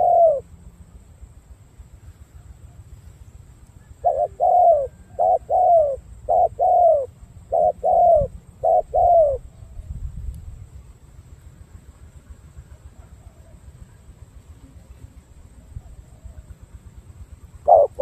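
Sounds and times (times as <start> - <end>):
dove cooing: 0.0 - 0.5, 3.8 - 10.0, 12.6 - 14.0, 14.7 - 16.8, 17.4 - 18.0.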